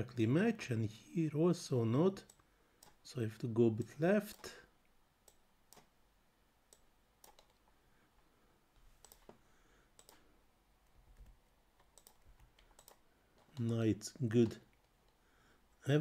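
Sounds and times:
mouse and keyboard clicks: 6.7 - 7.6, 11.2 - 13.8.

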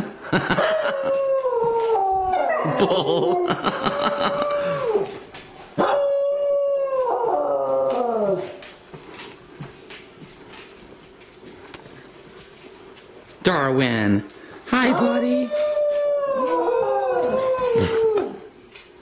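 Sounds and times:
dogs howling: 0.6 - 8.6, 14.8 - 18.6.

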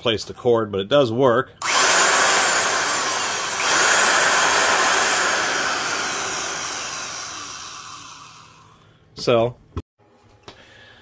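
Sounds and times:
drill motor whining: 1.6 - 8.8.

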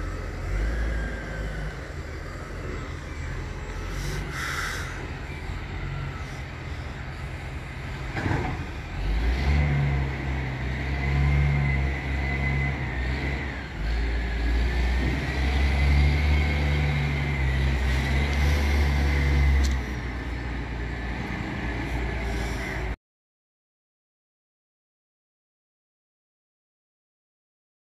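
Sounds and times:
diesel engine humming: 0.0 - 23.0.

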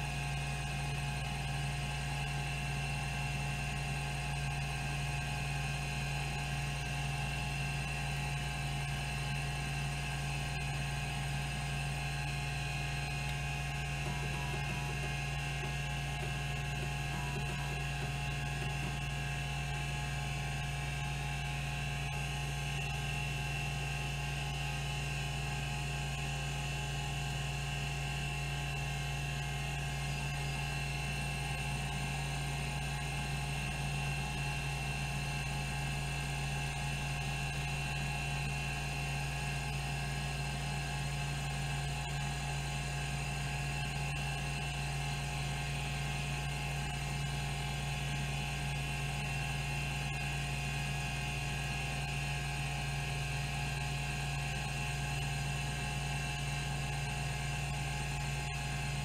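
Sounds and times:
hard drive spinning hum: 0.0 - 59.0
hard drive seeking: 12.5 - 19.7.

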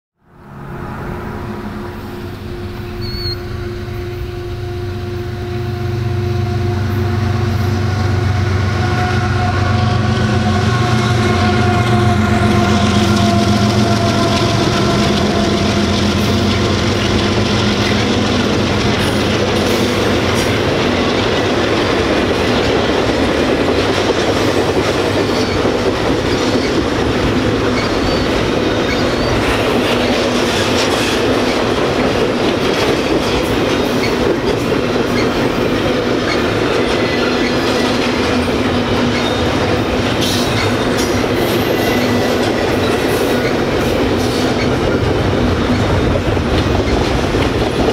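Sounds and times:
locomotive engine hum: 0.2 - 47.9
high wheel squeals: 0.5 - 7.0, 27.6 - 29.6.

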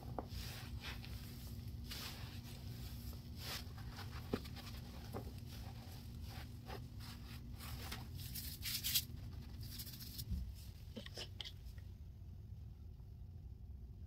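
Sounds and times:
powder crunching and scratching: 0.0 - 10.3
low steady hum: 0.0 - 14.0.

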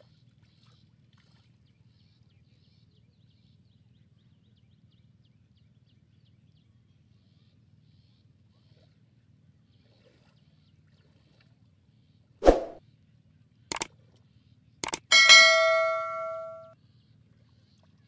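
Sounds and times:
short swoosh: 12.4 - 12.8
mouse clicks: 14.8 - 15.1
bell ding: 15.1 - 16.7.

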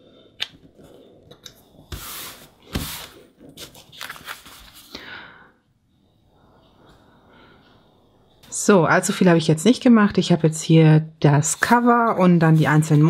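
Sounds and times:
paper rustling and scraping: 1.9 - 4.9, 11.5 - 13.0.

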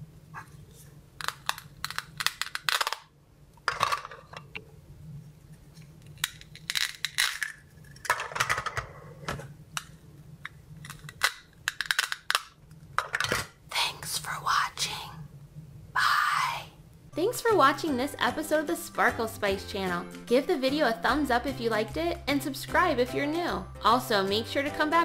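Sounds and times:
plastic pieces clattering: 6.1 - 8.8, 10.8 - 13.5.

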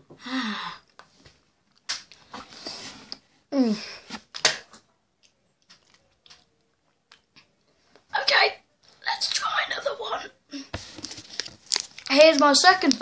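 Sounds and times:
boy gasping: 0.1 - 0.9, 3.6 - 4.1.

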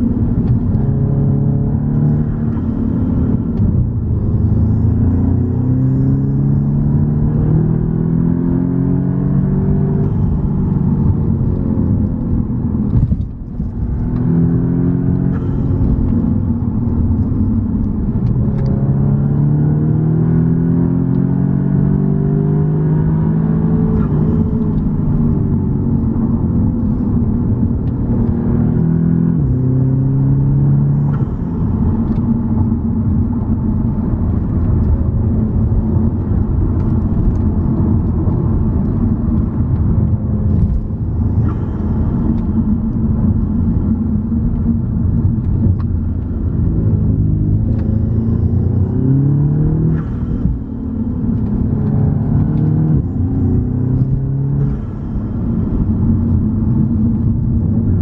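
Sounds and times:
car engine accelerating: 0.0 - 58.0.

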